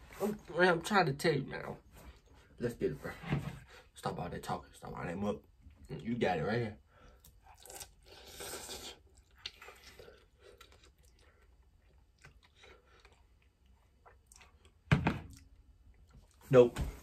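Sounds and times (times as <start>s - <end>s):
person slurping noodles: 7.5s - 9.2s.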